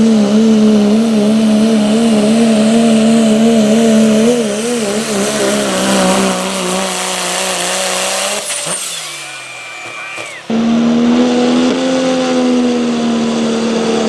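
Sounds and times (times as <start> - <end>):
diesel engine under load: 0.0 - 14.0
steady high whistle: 8.7 - 10.8.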